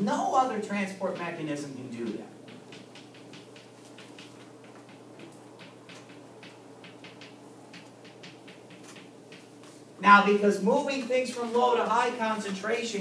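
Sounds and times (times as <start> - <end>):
low room hum: 0.0 - 13.0
chalk tapping on chalkboard: 1.1 - 9.8.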